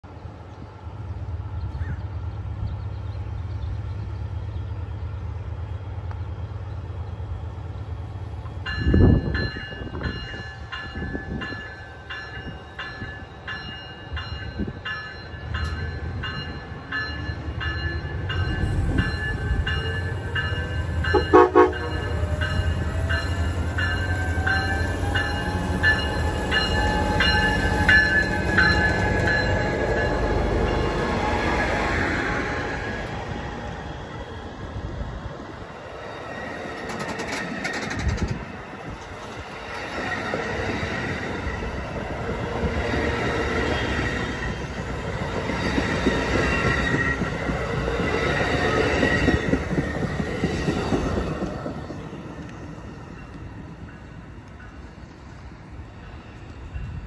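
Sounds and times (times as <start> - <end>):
diesel locomotive engine: 0.0 - 57.0
locomotive bell ringing: 8.6 - 31.2
train horn taps: 21.1 - 22.2.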